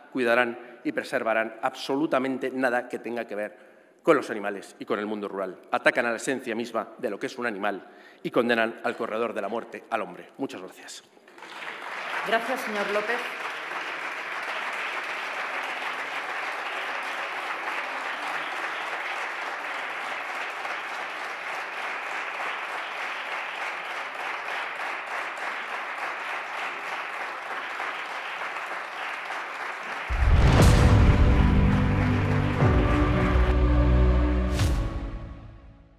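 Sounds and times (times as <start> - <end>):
crowd applauding: 11.3 - 35.2
loud music: 30.1 - 35.8.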